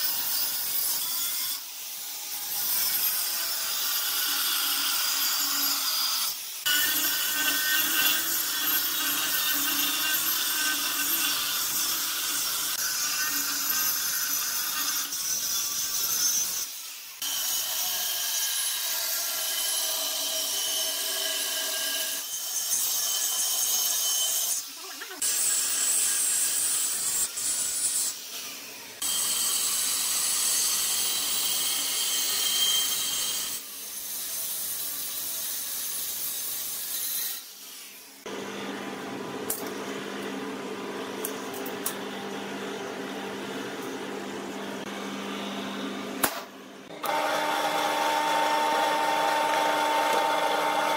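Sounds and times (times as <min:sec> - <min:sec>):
angle grinder cutting steel: 0:00.0 - 0:38.4, 0:46.9 - 0:50.9.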